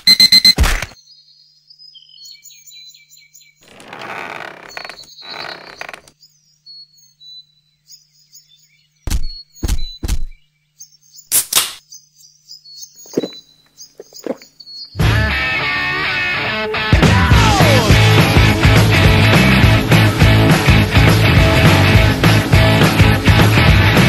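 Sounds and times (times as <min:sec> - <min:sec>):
birds chirping: 0:00.9 - 0:16.2
sharp thuds: 0:09.1 - 0:10.4.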